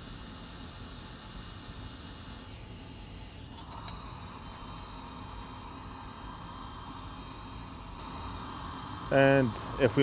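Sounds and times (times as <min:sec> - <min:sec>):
faint hiss: 0:03.6 - 0:10.0.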